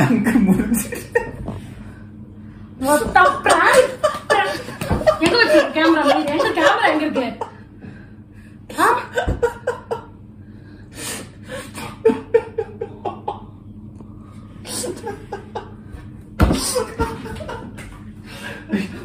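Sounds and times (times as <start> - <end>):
people laughing: 2.9 - 7.7, 8.8 - 10.2, 11.6 - 13.6, 14.6 - 16.0, 16.6 - 19.0.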